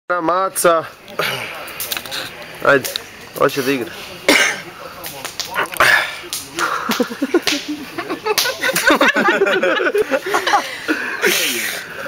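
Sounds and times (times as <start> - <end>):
people laughing and exclaiming: 4.6 - 12.0
sharp smacks: 6.3 - 7.7.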